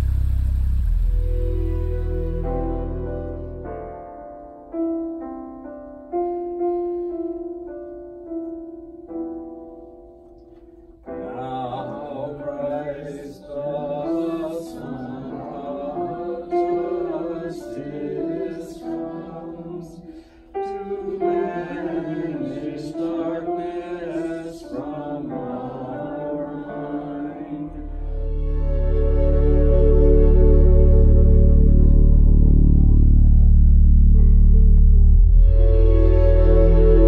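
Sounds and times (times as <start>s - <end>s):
digital piano: 0.0s - 37.0s
group singing a hymn: 11.1s - 33.0s.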